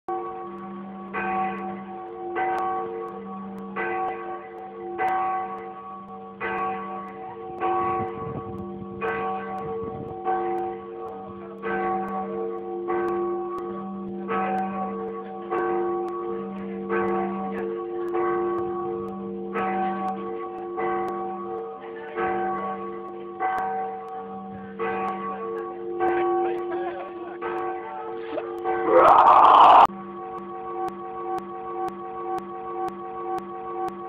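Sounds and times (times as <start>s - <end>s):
church bells ringing: 0.1s - 29.0s, 29.8s - 34.0s.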